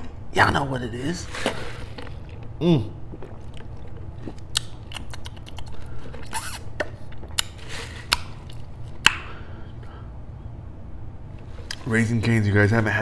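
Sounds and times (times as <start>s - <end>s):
steady low hum: 0.0s - 13.0s
paper cup rustles: 1.2s - 2.5s.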